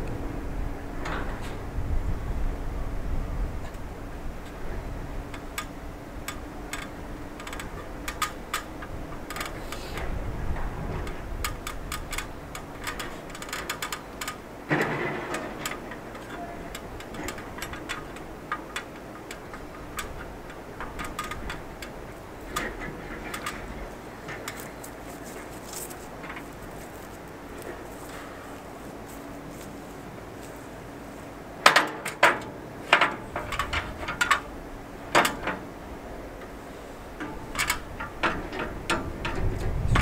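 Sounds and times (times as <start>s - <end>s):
metallic clicks on ladder: 5.3s - 29.8s, 31.6s - 34.5s, 35.1s - 35.7s, 36.4s - 40.0s.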